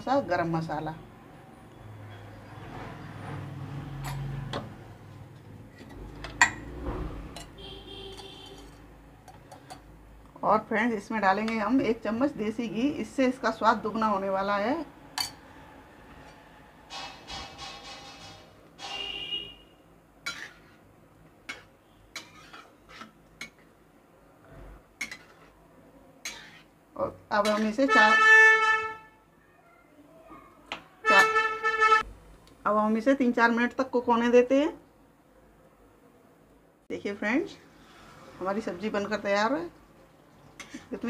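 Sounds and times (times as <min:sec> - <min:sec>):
metal spatula scraping curry: 0:20.2 - 0:23.8, 0:25.0 - 0:25.6, 0:26.2 - 0:26.8, 0:40.5 - 0:40.9.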